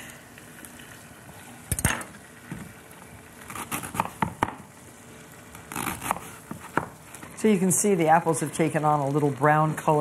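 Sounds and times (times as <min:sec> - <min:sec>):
knife cutting cabbage: 0:03.4 - 0:04.5, 0:05.5 - 0:06.9.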